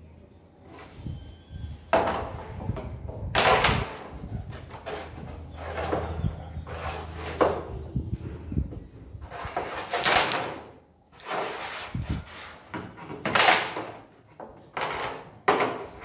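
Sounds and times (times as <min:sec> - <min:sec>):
pieces sliding on wooden board: 0:03.8 - 0:07.8, 0:09.2 - 0:13.0
carrom pieces knocking: 0:09.6 - 0:10.8, 0:12.7 - 0:16.0.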